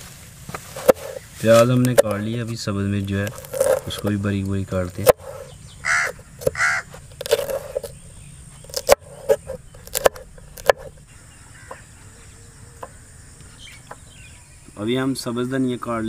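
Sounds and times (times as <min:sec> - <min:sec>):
knife chopping on wooden board: 0:08.7 - 0:10.9.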